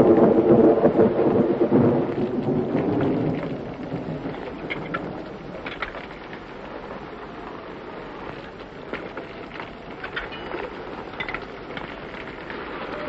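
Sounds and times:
raindrop ticks: 0:00.0 - 0:13.0
steady rain hiss: 0:00.0 - 0:13.0.

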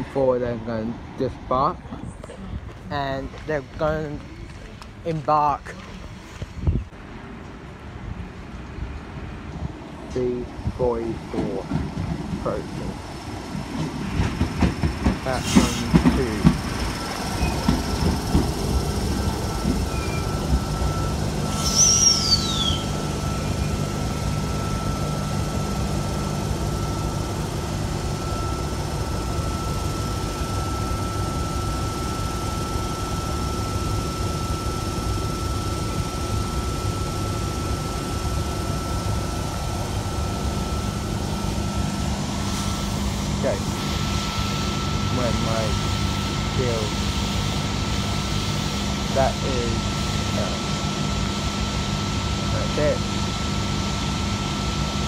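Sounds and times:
thin steady whine: 0:00.0 - 0:07.0, 0:09.4 - 0:55.0
train equipment humming: 0:00.0 - 0:55.0
short falling squeal: 0:19.8 - 0:20.5, 0:21.4 - 0:24.5.

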